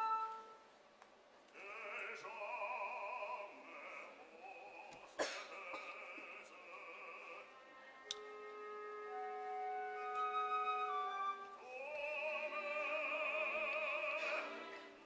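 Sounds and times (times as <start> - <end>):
operatic baritone singing: 1.5 - 8.1, 10.9 - 15.0.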